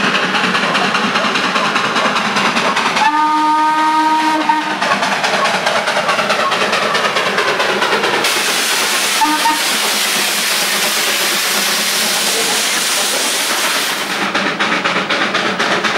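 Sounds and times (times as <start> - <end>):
steam locomotive whistle: 3.0 - 4.8, 9.1 - 9.9
hiss of escaping steam: 8.2 - 15.0.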